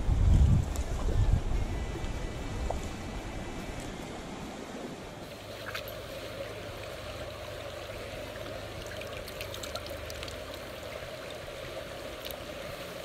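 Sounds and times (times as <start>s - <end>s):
river water rushing: 3.0s - 13.0s.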